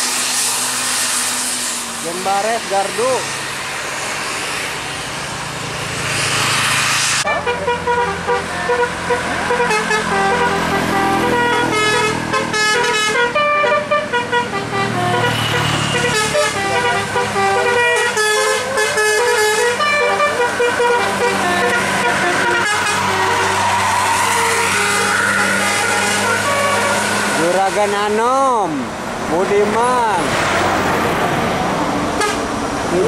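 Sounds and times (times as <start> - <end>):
diesel engine running: 0.0 - 33.0
rushing noise: 0.0 - 33.0
bus horn playing melody: 7.2 - 28.0, 32.1 - 32.6.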